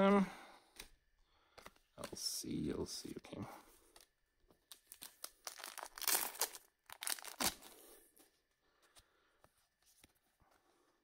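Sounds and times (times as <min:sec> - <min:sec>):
wrapper tearing and crinkling: 0:04.7 - 0:07.7.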